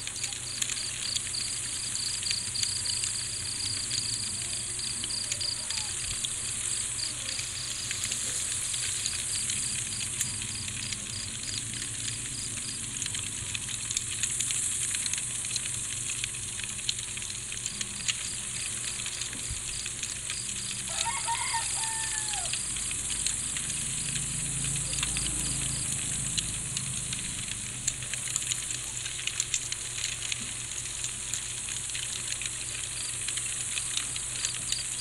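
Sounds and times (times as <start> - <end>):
high insect hiss: 0.0 - 16.0, 32.8 - 35.0
crickets chirping: 0.0 - 30.1, 31.4 - 35.0
small crackles: 0.0 - 35.0.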